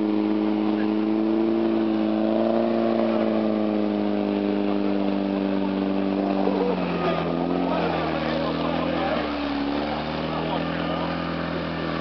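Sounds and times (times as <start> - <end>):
tracked vehicle engine under load: 0.0 - 12.0.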